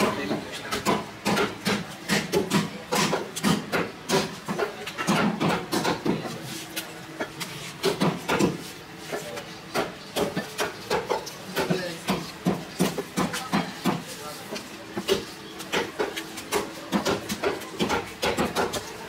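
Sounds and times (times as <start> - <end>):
cleaver chopping bone on wood: 0.7 - 6.2, 9.7 - 14.0, 15.1 - 18.8.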